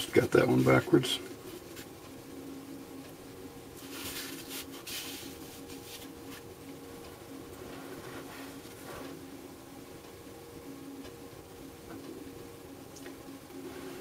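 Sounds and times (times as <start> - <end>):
faint steady hum: 0.0 - 14.0
rustling of components on cardboard: 3.8 - 6.5.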